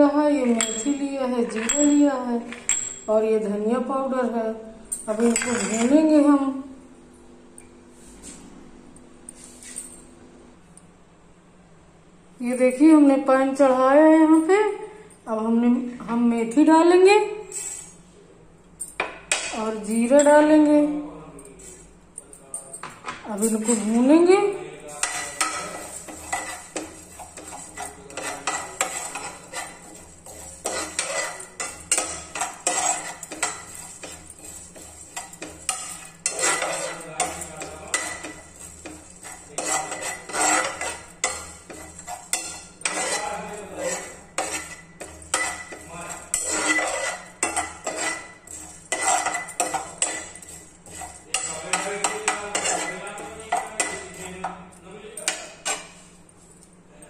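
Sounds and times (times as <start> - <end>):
metal spoon scraping frying pan: 0.4 - 3.1, 5.1 - 6.1, 24.9 - 54.6, 55.2 - 56.1.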